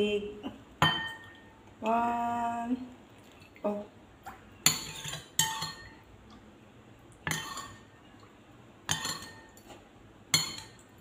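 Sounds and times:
metal spoon clinking on ceramic: 0:04.7 - 0:06.0, 0:08.9 - 0:09.6, 0:10.3 - 0:10.8.

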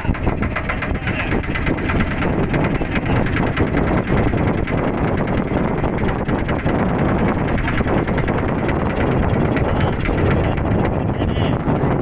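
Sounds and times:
motorboat engine running: 0:00.0 - 0:12.0
wind buffeting microphone: 0:00.0 - 0:12.0.

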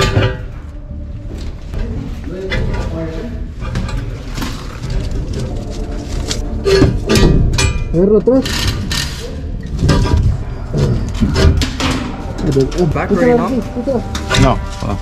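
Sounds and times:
men talking: 0:12.4 - 0:15.0.

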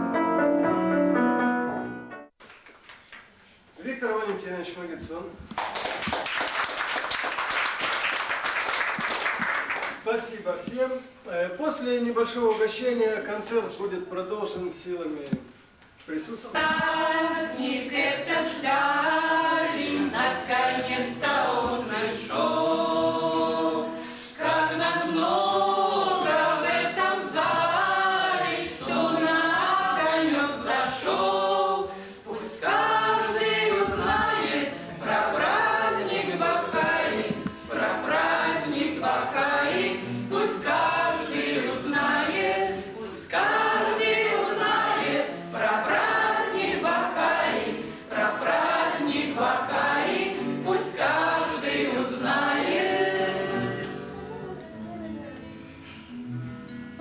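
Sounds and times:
women singing in harmony: 0:16.6 - 0:54.8.

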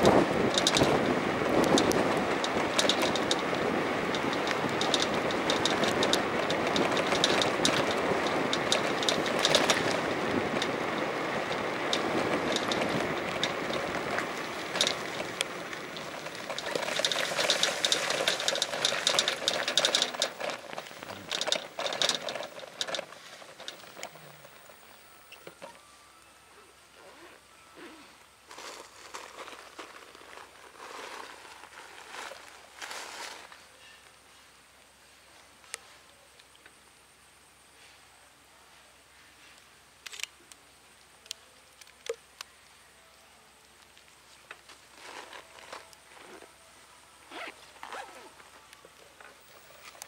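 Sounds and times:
rain falling: 0:00.0 - 0:25.5
pattering raindrops: 0:00.0 - 0:25.6.

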